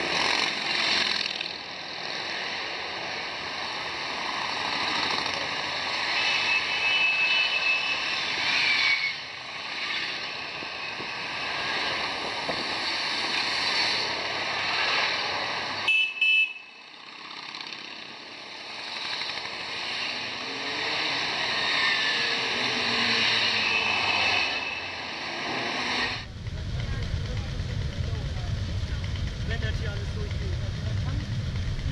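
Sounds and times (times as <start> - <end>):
motorcycle engines rumbling: 0.0 - 31.9
horn toots: 15.9 - 16.7, 23.0 - 25.0.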